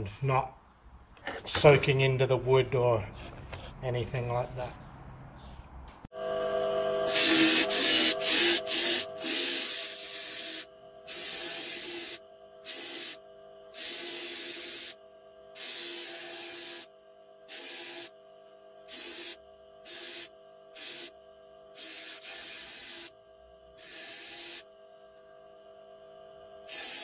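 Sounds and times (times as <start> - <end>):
disc sander humming: 6.1 - 13.2
wood sanding hiss: 7.1 - 13.2.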